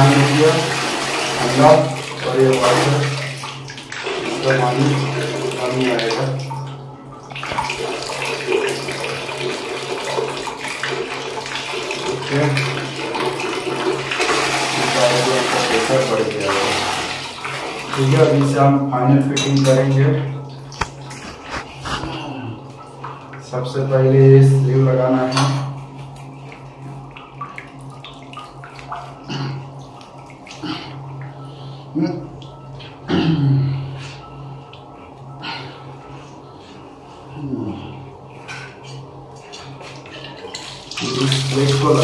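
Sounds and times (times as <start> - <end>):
water pouring into plastic bucket: 0.0 - 6.4, 7.4 - 18.5
steady low hum: 15.8 - 42.0.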